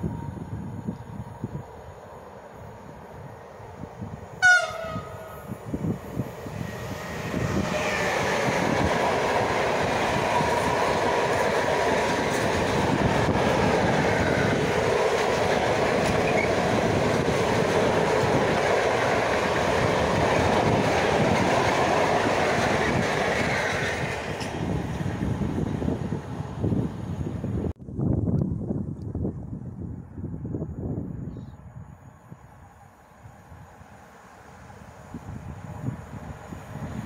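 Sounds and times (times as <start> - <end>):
electric locomotive passing: 0.0 - 27.7, 29.6 - 37.0
wheels squealing: 16.0 - 16.7.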